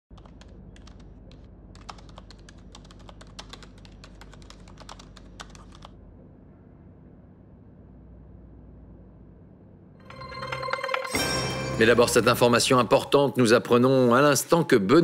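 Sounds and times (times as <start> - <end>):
laptop keyboard typing: 0.1 - 6.0
low steady hum: 0.1 - 15.0.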